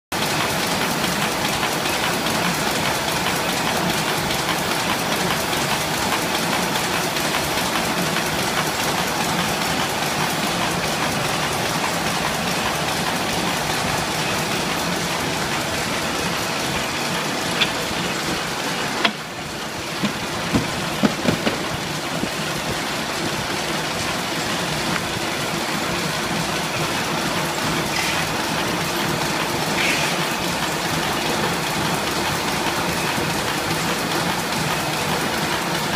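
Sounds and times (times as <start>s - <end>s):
gluing machine running: 0.2s - 35.9s
sharp knocks: 20.0s - 21.7s.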